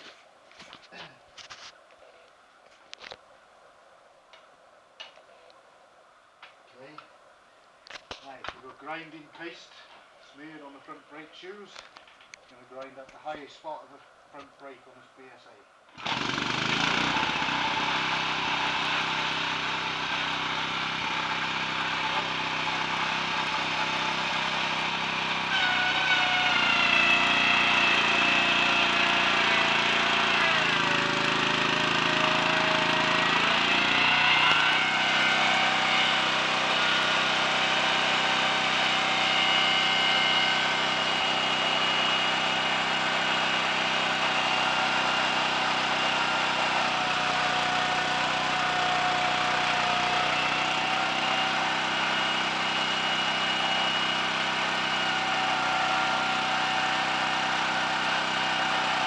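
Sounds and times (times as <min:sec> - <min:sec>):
small petrol engine running: 0:16.0 - 0:59.0
spinning wheel whine: 0:16.0 - 0:59.0.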